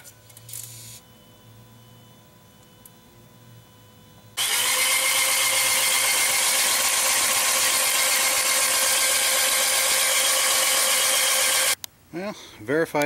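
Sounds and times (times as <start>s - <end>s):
fuel pump hum: 4.4s - 11.8s
starter motor cranking whir: 4.4s - 11.8s.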